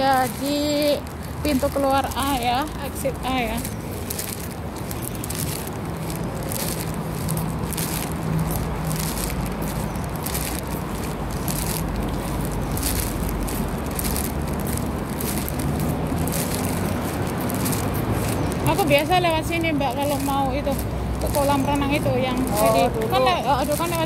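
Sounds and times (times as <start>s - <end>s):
footsteps scuffing on paving: 0.0s - 24.0s
street traffic rumble: 0.0s - 24.0s.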